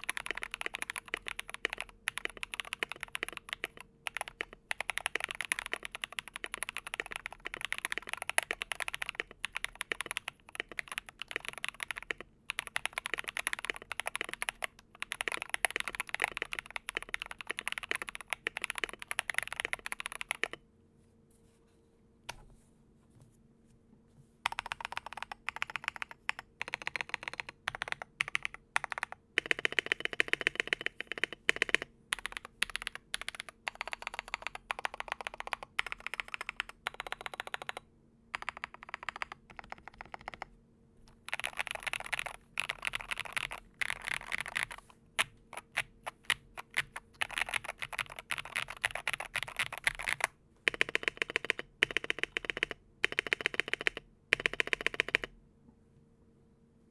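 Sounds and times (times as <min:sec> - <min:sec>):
mechanical keyboard typing: 0:00.0 - 0:20.6, 0:24.5 - 0:40.5, 0:41.1 - 0:55.3.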